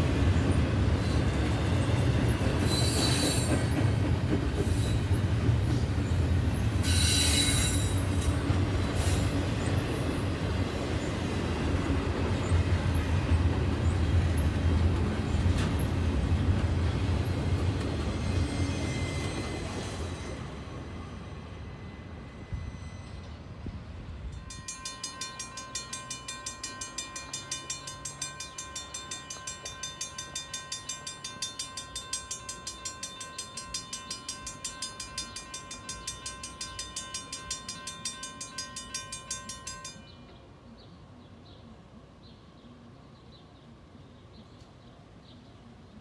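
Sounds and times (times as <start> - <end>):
railroad crossing bell ringing: 0.0 - 11.0, 18.0 - 40.4
faint birdsong: 39.9 - 46.0.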